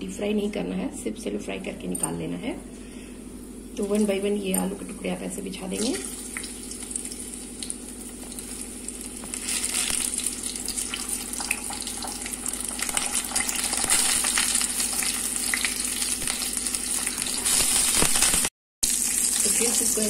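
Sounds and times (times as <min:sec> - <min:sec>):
oil crackling: 0:05.8 - 0:19.9
potatoes sizzling in oil: 0:05.8 - 0:20.0.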